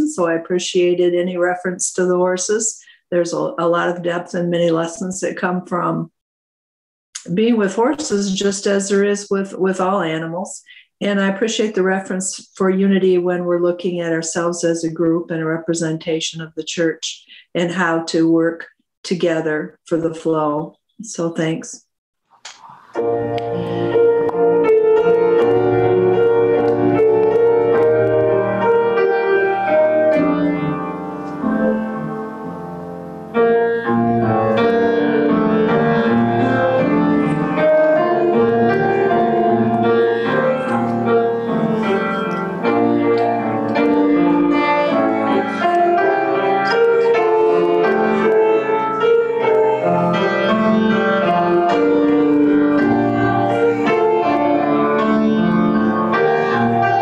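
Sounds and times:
grand piano piece: 22.5s - 57.0s.

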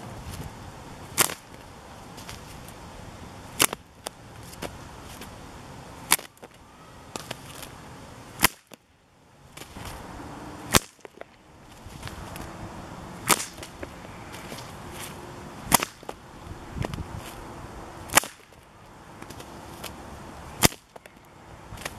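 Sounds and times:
whip cracking: 1.2s - 1.5s, 8.4s - 8.8s, 10.7s - 11.1s, 13.2s - 13.8s, 15.7s - 16.2s, 18.1s - 18.6s, 20.6s - 21.0s.

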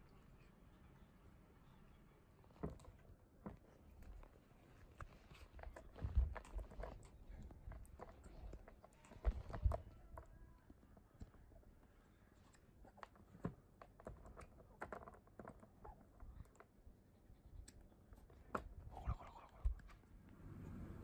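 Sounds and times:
teeth and claws scratching plastic: 3.6s - 11.5s, 12.2s - 20.1s.

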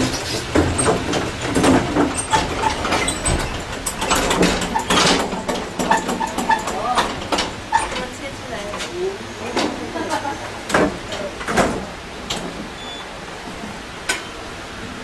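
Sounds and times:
metal cart rattling on casters: 0.0s - 8.8s
irregular knocks: 0.5s - 8.1s.

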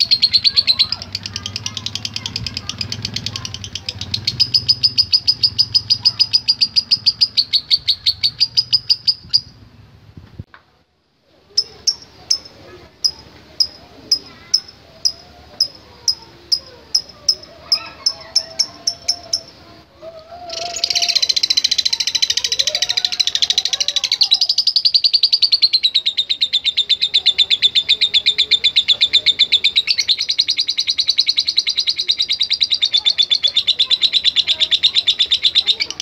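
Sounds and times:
bird chattering: 0.0s - 9.6s, 11.5s - 36.0s
bird clicking chirps: 0.3s - 7.6s, 11.6s - 19.5s.

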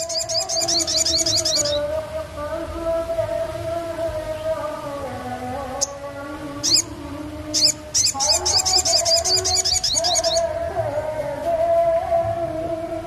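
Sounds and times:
bird chirping and trilling: 0.0s - 1.9s, 5.7s - 10.6s
background music: 0.0s - 13.0s.

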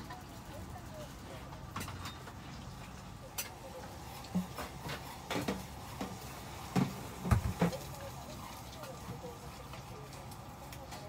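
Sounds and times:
cutlery clinking on tableware: 1.7s - 2.4s.

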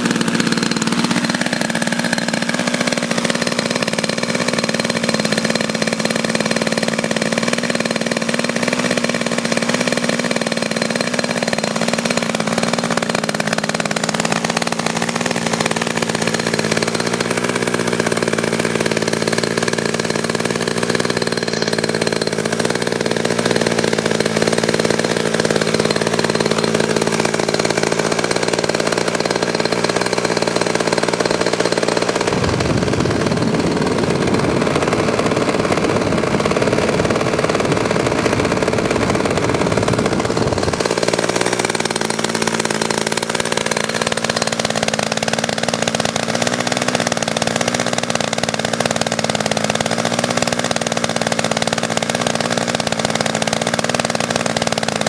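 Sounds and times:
model aircraft engine running: 0.0s - 55.0s
rough rumble: 23.5s - 42.7s.

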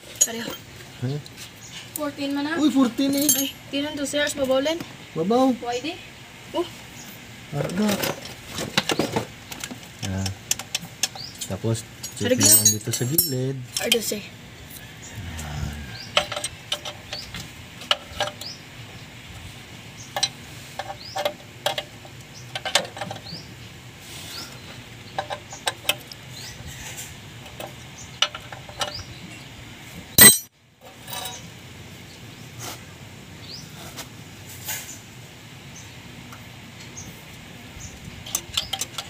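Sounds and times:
hand tools clinking on metal: 0.1s - 0.7s, 3.0s - 3.6s, 12.0s - 14.1s, 30.2s - 31.4s.

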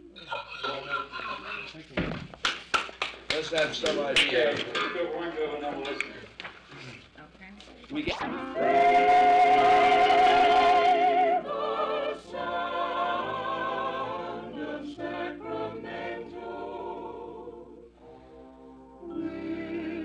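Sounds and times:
vocal group singing jingle: 8.2s - 20.0s.

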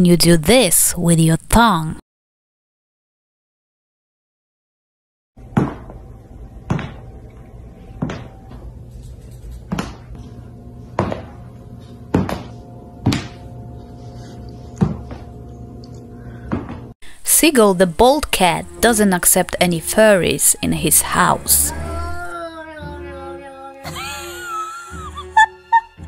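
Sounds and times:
soft background music: 5.4s - 16.3s, 17.3s - 26.0s.

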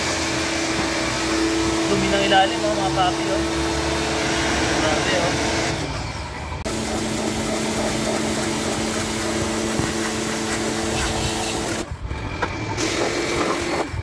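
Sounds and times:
motor humming: 0.0s - 13.9s
cleaning machine hiss: 6.7s - 11.8s.

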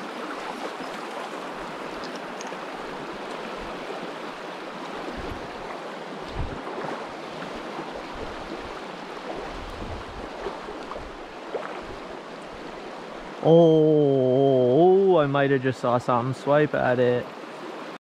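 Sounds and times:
river rushing over cobbles: 0.0s - 13.6s.

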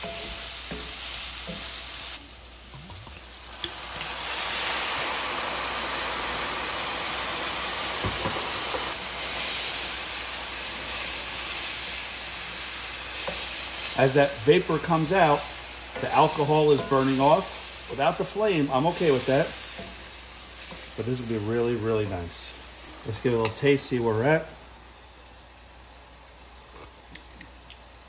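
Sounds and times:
mushrooms sizzling in a skillet: 0.0s - 28.0s.

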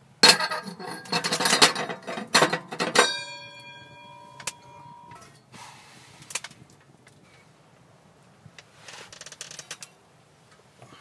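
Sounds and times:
metal lid scraping and clanking: 0.2s - 5.4s
ringing metal clank: 0.2s - 5.5s.

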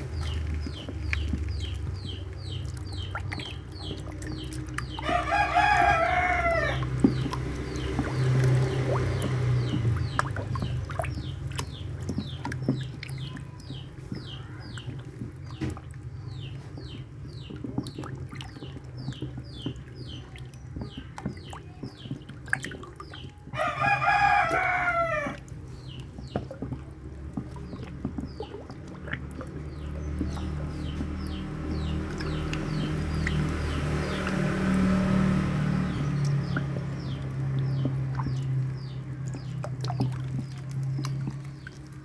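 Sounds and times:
turtles splashing in water: 0.0s - 42.0s
rooster crowing: 5.0s - 6.8s, 23.6s - 25.4s.

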